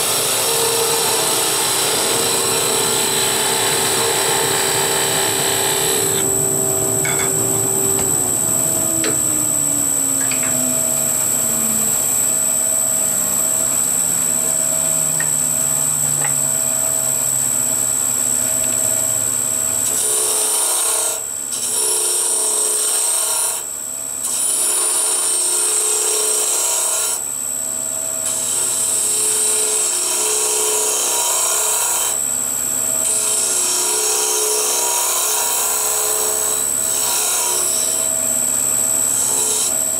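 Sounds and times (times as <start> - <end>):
turning tool cutting wood: 0.0 - 12.3
wood lathe whine: 0.0 - 39.9.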